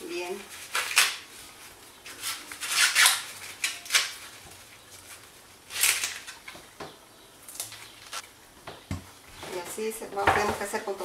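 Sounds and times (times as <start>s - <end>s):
corn husks tearing: 0.4s - 6.5s.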